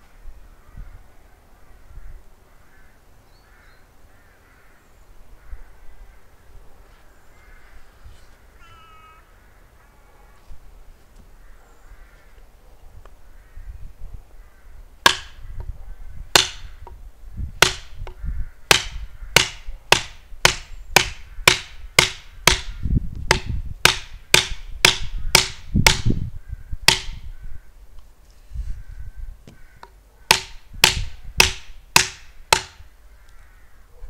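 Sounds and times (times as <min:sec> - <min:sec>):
mallet striking a chisel: 0:15.0 - 0:15.4, 0:16.3 - 0:17.0, 0:17.6 - 0:22.7, 0:23.3 - 0:26.1, 0:26.9 - 0:27.2, 0:29.8 - 0:32.8.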